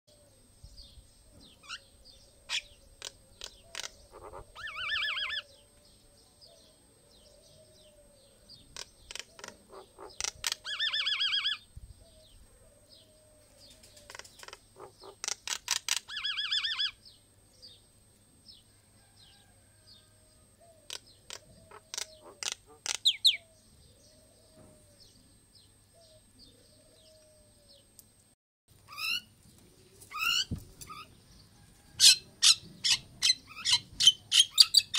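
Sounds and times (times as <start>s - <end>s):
myna bird clicks and warble: 3.0s - 4.4s, 8.7s - 10.9s, 13.7s - 16.2s, 20.8s - 23.4s.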